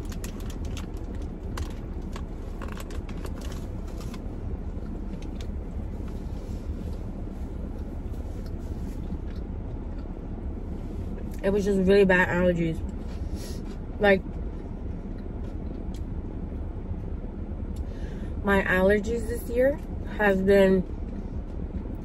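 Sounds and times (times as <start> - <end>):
chewing and handling food: 0.0 - 11.4, 12.8 - 16.6
steady low rumble: 0.0 - 22.0.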